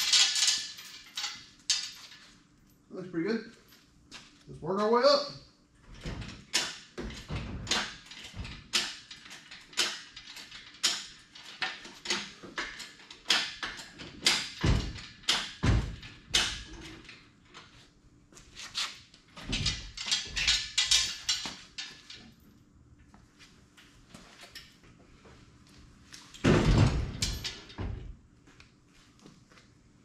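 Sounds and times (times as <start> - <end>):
metal clunks and knocks: 5.9 - 17.7, 19.4 - 22.3, 26.4 - 28.2.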